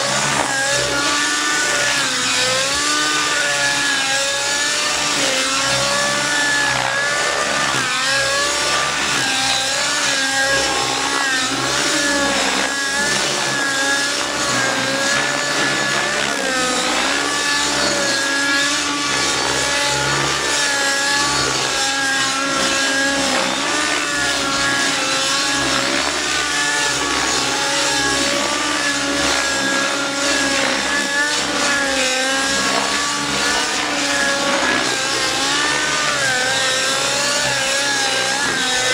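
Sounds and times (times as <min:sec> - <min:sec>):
model helicopter engine and rotor: 0:00.0 - 0:38.9.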